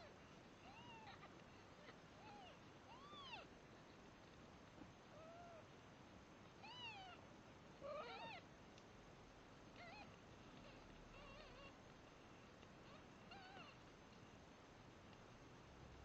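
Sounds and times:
kittens mewing: 12.9 - 13.9.

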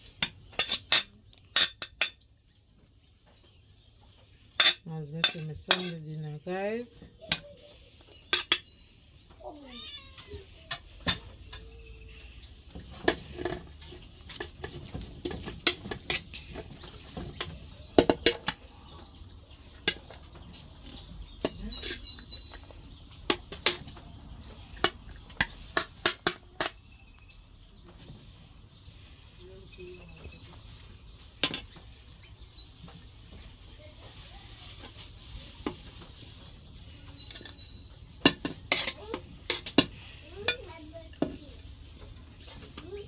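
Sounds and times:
cutlery clinking on plate: 4.6 - 6.0, 8.2 - 8.7, 21.4 - 22.7.

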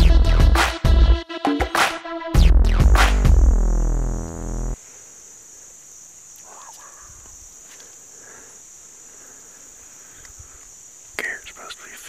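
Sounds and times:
electronic music: 0.0 - 4.8
insects droning: 3.1 - 12.0.

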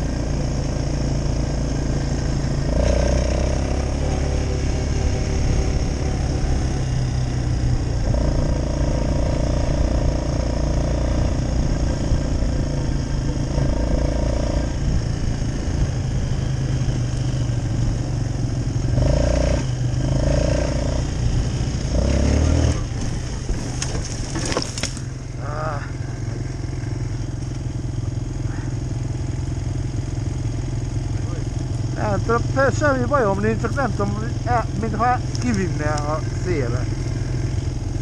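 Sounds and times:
quad bike engine running: 0.0 - 38.0.

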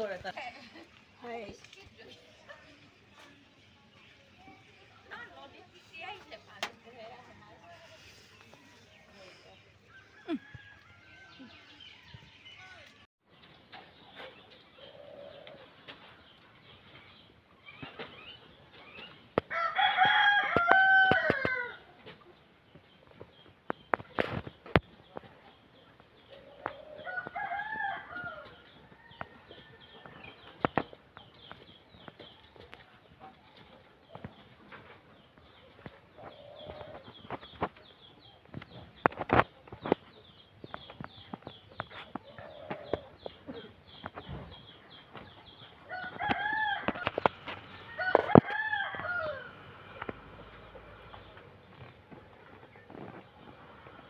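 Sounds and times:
rooster crowing: 9.9 - 11.8, 19.5 - 21.8, 27.0 - 28.5, 47.9 - 49.6.

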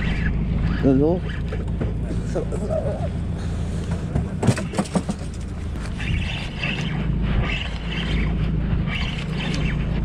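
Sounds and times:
boat engine humming: 0.0 - 10.0.

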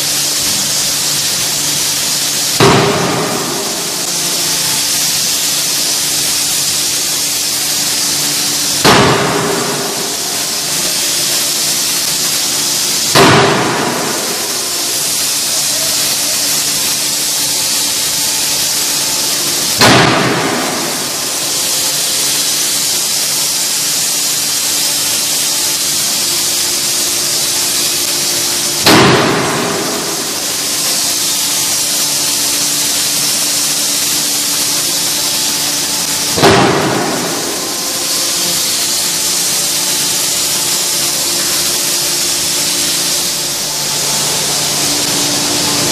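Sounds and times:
steady hiss and low hum: 0.0 - 45.9
forging hammer blows: 2.4 - 5.7, 8.6 - 16.2, 19.6 - 22.7, 28.4 - 32.5, 35.4 - 40.7.

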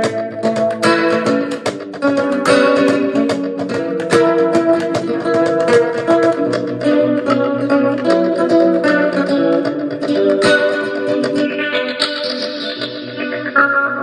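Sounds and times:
knocks on guitar body: 0.0 - 6.9
plucked acoustic guitar: 0.0 - 14.0.

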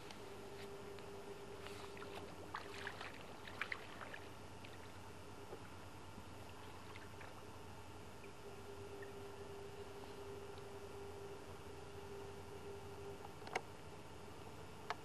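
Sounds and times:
faint hum: 0.0 - 15.0
water lapping at shore: 1.6 - 7.6.

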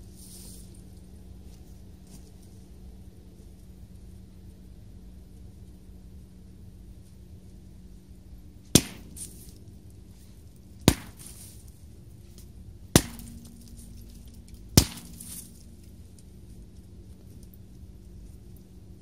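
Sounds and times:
sledgehammer striking scrap metal: 8.8 - 9.5, 10.9 - 11.6, 13.0 - 15.6.

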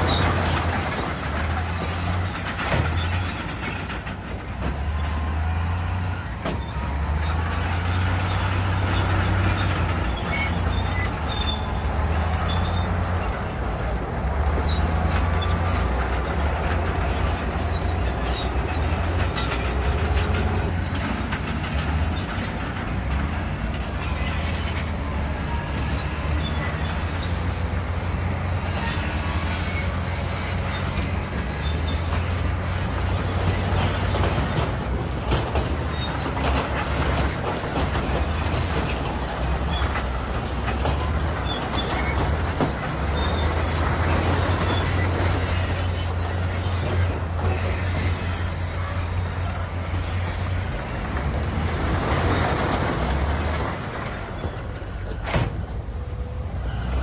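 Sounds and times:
diesel engine droning: 0.0 - 57.0
steel tracks clattering on stone: 0.0 - 57.0.

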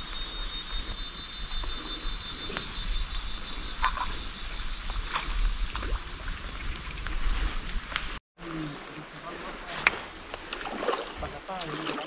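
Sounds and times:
frogs chorus: 0.0 - 7.1.

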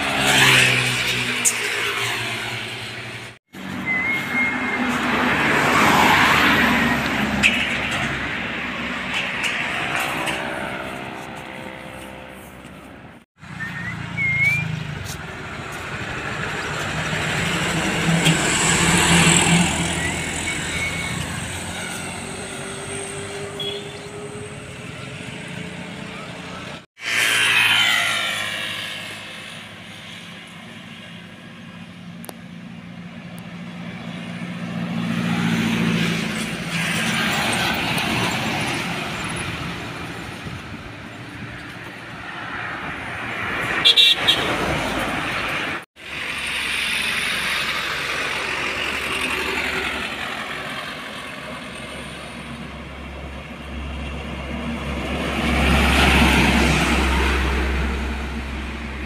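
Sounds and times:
trucks passing on highway: 0.0 - 59.0
diesel truck engine rumble: 46.0 - 59.0.

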